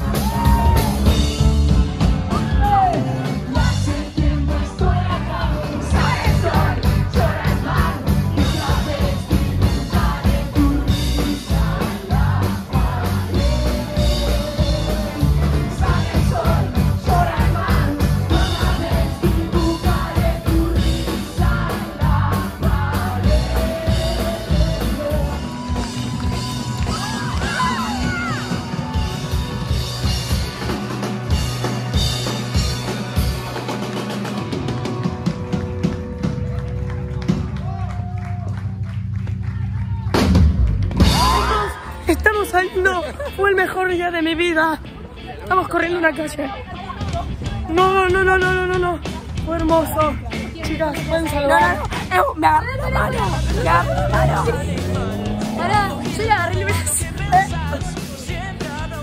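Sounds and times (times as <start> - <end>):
live rock band playing: 0.0 - 38.0, 40.1 - 59.0
lead vocals singing: 2.9 - 27.8, 50.7 - 59.0.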